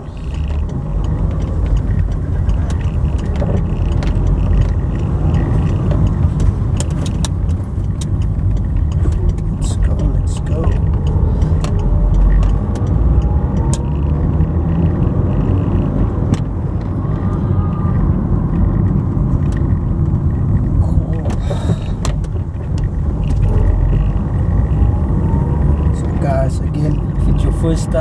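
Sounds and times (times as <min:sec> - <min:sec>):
car engine and road rumble: 0:00.0 - 0:28.0
sharp clicks: 0:00.2 - 0:17.0.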